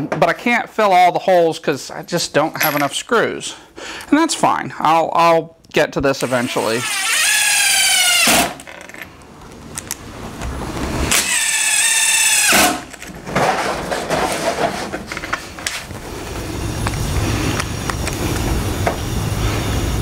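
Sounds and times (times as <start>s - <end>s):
cordless drill driving screws: 6.2s - 8.7s, 11.1s - 12.9s.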